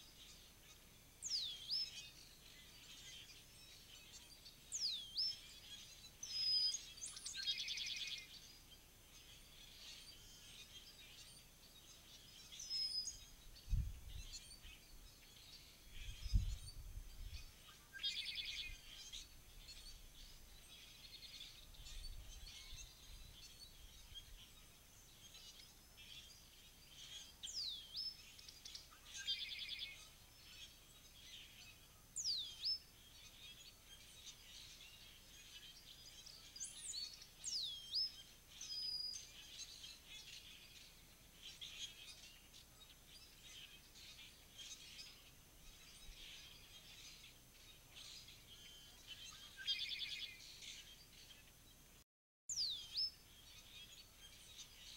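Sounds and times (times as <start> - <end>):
songbirds chirping: 0.0 - 54.9.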